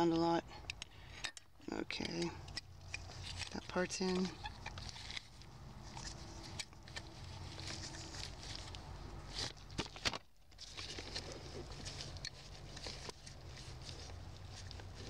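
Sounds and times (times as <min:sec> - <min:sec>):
rubber boot rustling: 0:04.6 - 0:15.0.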